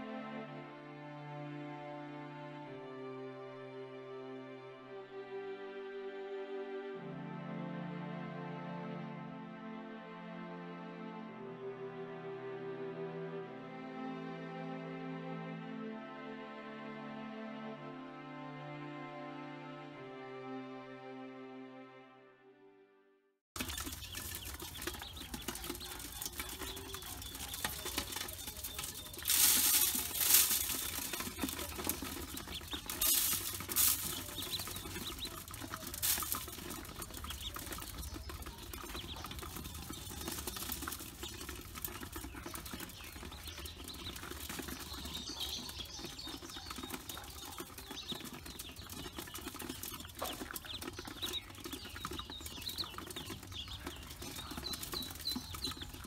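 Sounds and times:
ducklings pattering in metal bowl: 23.6 - 56.0
ducklings peeping: 23.6 - 56.0
scuffling bursts: 23.8 - 38.0.

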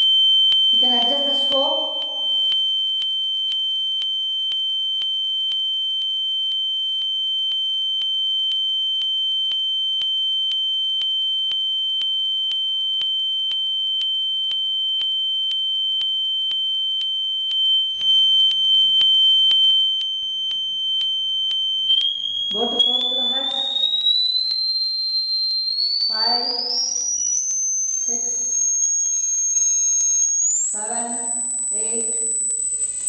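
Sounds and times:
steady sine-wave tone: 0.0 - 33.0
faint regular ticks: 8.0 - 33.0.

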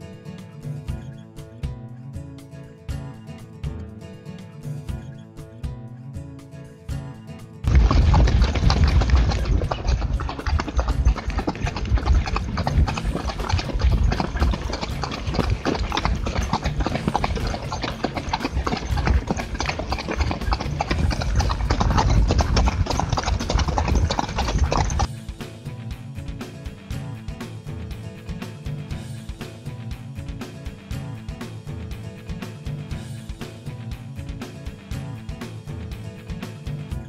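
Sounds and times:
horse hoofbeats on dirt: 7.7 - 25.1.

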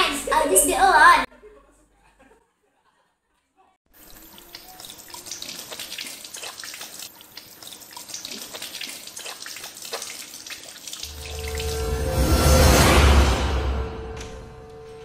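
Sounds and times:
tap water splashing into sink: 4.0 - 11.1.

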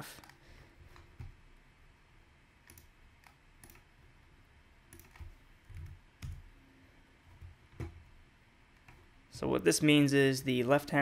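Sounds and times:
faint low hum: 0.0 - 11.0
computer mouse clicks: 0.2 - 1.4, 2.6 - 3.9, 4.9 - 6.5, 8.7 - 9.0.

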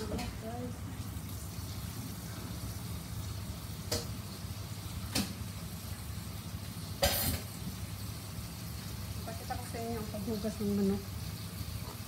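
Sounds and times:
gas burner rumble under pot: 3.2 - 12.0.

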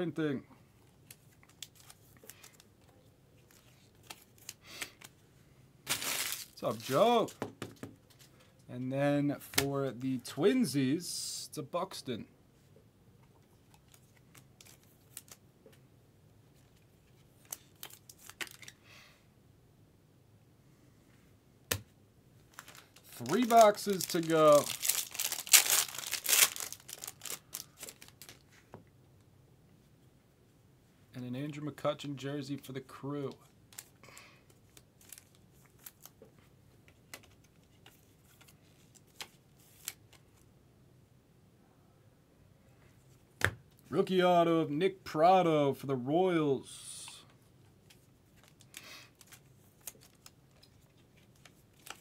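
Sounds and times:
trading cards and packaging handled: 0.8 - 5.3, 5.9 - 8.7, 13.3 - 15.8, 16.5 - 18.8, 22.4 - 28.8, 33.4 - 40.5, 47.0 - 52.0.

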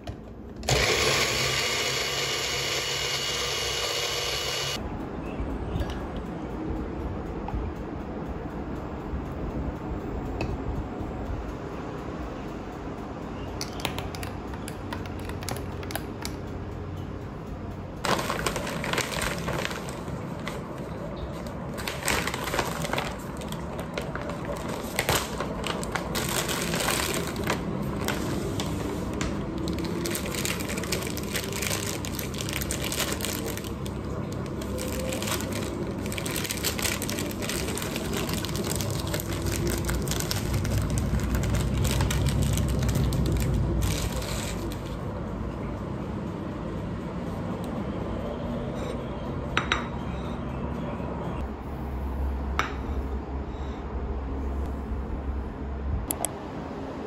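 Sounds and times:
plastic wrapper crinkling: 18.1 - 45.0.

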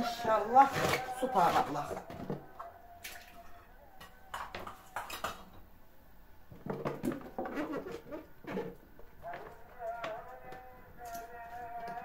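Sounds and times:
kitchen clatter of knocks and clinks: 4.3 - 5.6.

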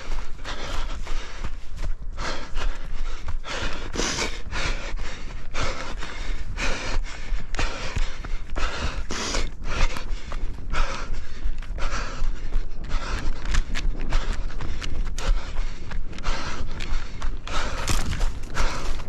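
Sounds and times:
runner panting: 0.0 - 19.0
dull footfalls: 12.6 - 19.0.

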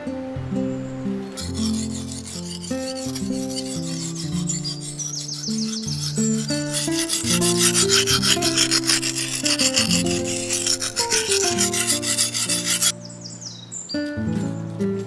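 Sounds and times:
soft background music: 0.0 - 4.6, 12.9 - 15.0
blade scraping on sharpening stone: 1.4 - 12.9.

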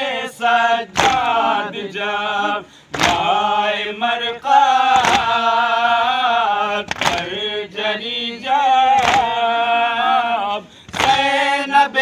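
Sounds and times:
men chanting together: 0.0 - 12.0
sharp slaps: 0.9 - 1.4, 2.9 - 3.4, 4.8 - 5.5, 6.8 - 7.3, 8.9 - 9.4, 10.9 - 11.4.

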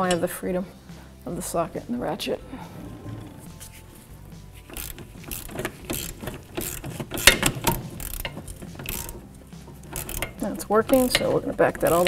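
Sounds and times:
hand ratchet clicking: 4.5 - 12.0.

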